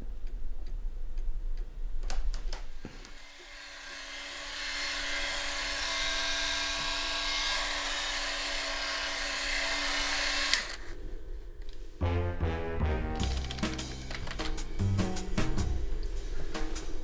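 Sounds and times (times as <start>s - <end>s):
electric shaver buzzing: 3.2s - 10.8s.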